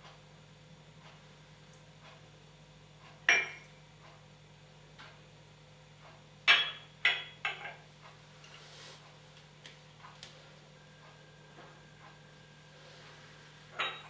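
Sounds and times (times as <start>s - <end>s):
porcelain cup clinking on saucer: 3.3s - 3.6s, 13.8s - 14.0s.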